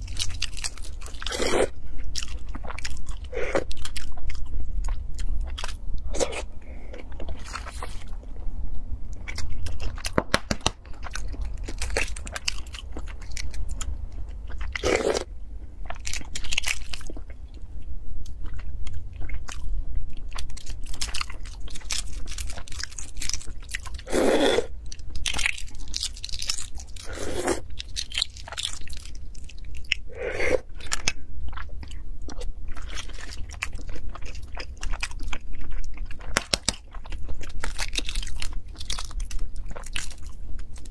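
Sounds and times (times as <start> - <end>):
eggshells crackling and crunching: 0.0 - 4.3, 20.4 - 30.1, 32.4 - 40.9.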